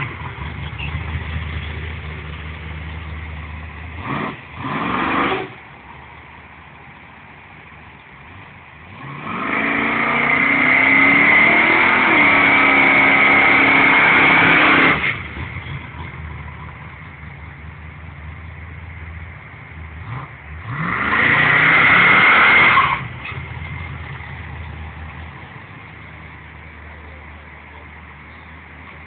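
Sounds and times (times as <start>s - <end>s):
car engine revving: 0.0s - 5.6s, 8.9s - 26.0s.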